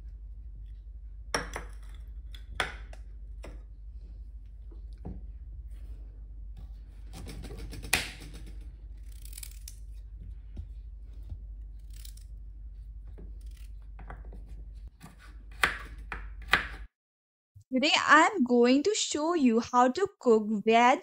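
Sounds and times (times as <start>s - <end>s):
steady low hum: 0.0s - 14.9s
knife slicing carrot: 12.8s - 16.8s.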